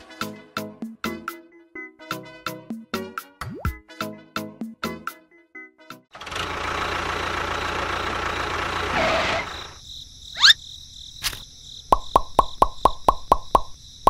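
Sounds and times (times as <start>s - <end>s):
toy tractor running: 6.2s - 9.8s
quick run of plops: 11.9s - 13.7s.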